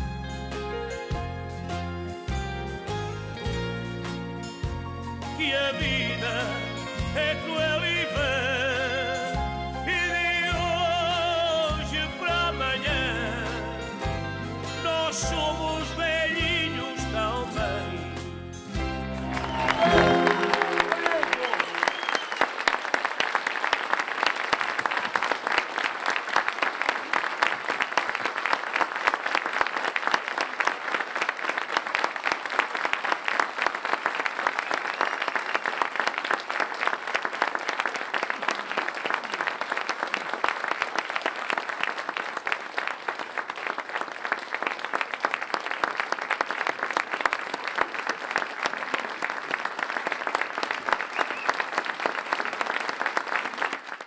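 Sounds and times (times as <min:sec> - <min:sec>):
audience applauding: 0:19.1 - 0:54.0.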